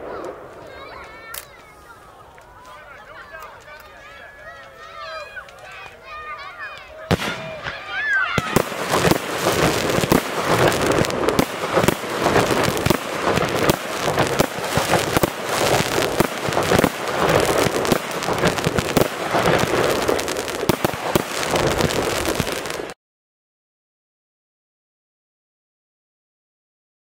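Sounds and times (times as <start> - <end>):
fireworks bangs and crackling: 0.0 - 2.6, 6.6 - 23.0.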